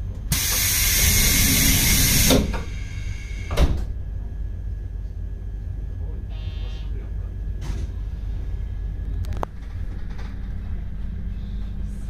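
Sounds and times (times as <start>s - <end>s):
low rumble of train: 0.0s - 12.0s
sharp air puff: 0.3s - 3.6s
compressed air hissing: 0.3s - 3.7s.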